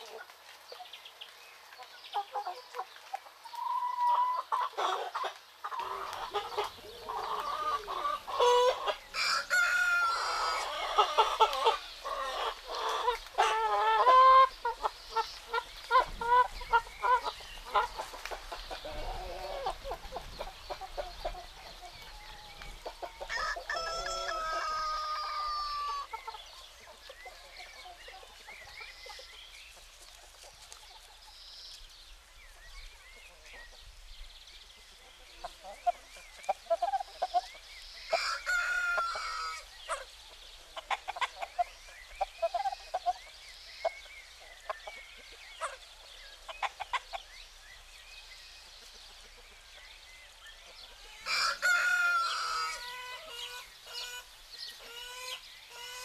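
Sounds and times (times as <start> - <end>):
hens clucking: 1.8 - 31.3, 35.0 - 47.3
roosters crowing: 5.8 - 14.5, 22.9 - 26.1, 38.0 - 39.7, 51.0 - 54.2.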